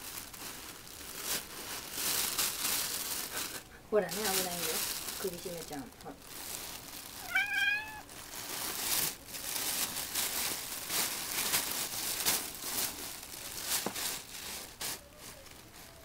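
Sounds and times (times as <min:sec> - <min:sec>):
plastic bags crinkling: 0:00.0 - 0:16.0
cat meowing: 0:07.2 - 0:08.1.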